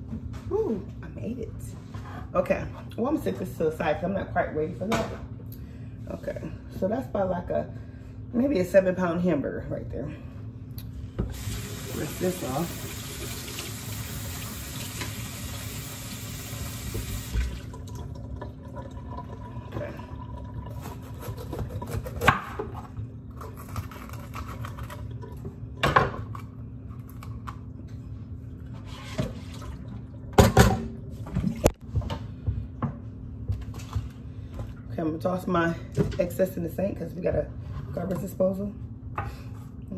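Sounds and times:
kitchen tap running: 11.2s - 21.8s.

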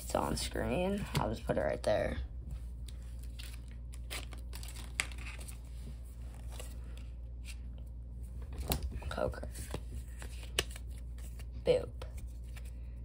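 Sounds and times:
steady low hum: 0.0s - 13.0s
trading cards tapping and rustling: 8.4s - 12.8s.

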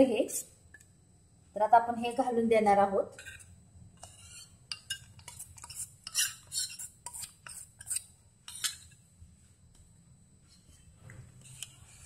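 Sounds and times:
spoon scraping and clinking bowl: 3.2s - 9.0s.

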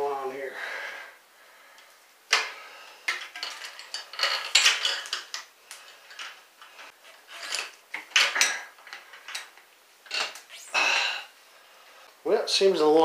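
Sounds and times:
metal chain clinking and rattling: 3.1s - 10.4s.

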